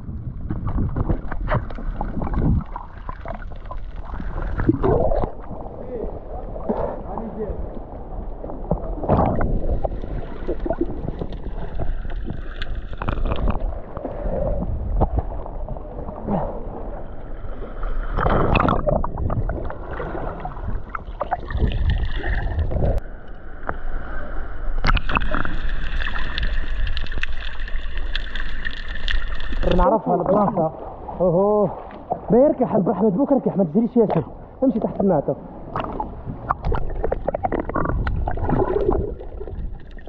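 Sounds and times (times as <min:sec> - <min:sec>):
muffled underwater rushing and bubbling: 0:00.0 - 0:40.0
splash into water: 0:18.1 - 0:23.0.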